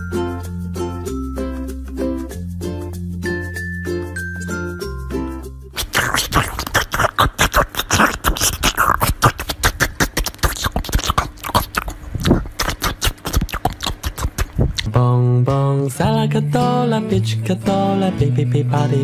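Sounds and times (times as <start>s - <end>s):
music: 0.0s - 11.9s, 12.6s - 19.0s
dog crunching watermelon: 5.8s - 14.9s.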